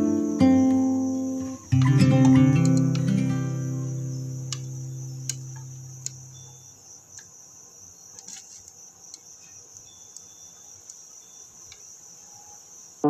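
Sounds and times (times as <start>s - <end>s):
plucked guitar chord: 0.0s - 5.7s.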